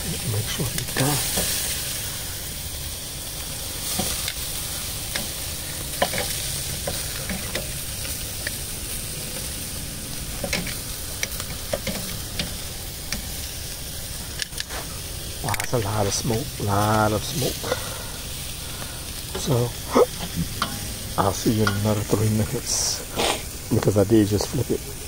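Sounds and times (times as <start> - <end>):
meat sizzling on grill: 0.0 - 25.0
sharp pops and clicks: 14.3 - 14.9.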